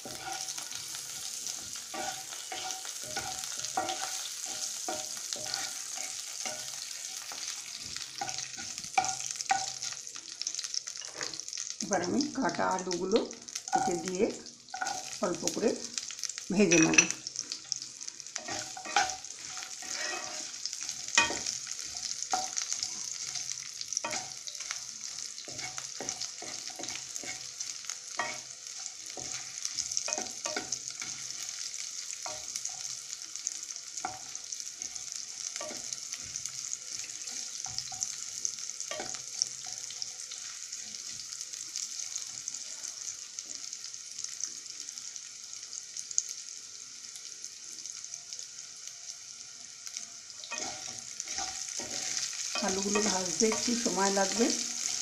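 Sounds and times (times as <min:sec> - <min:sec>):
potatoes sizzling in oil: 0:00.0 - 0:55.0
wooden spatula scraping pan: 0:18.4 - 0:23.0.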